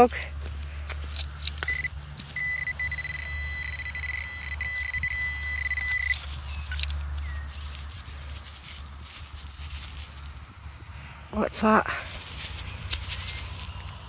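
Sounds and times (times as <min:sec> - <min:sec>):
high-pitched buzzing tone: 0:01.6 - 0:06.3.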